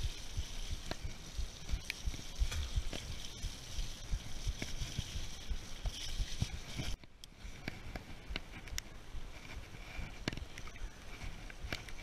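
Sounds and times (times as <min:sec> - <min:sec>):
bike rattling clicks: 0:00.0 - 0:07.4
bike tyres rolling through mud: 0:00.0 - 0:12.0.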